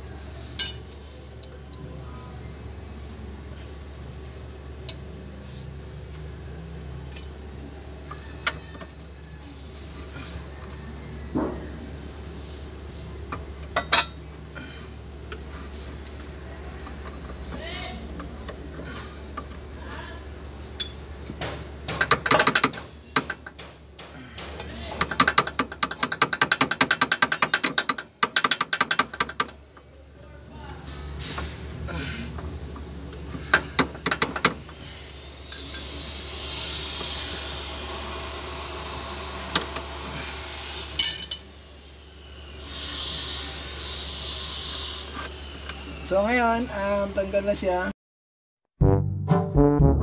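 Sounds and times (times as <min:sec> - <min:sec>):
metal tools clinking on steel: 0:00.4 - 0:01.7, 0:13.8 - 0:14.2, 0:41.0 - 0:41.5.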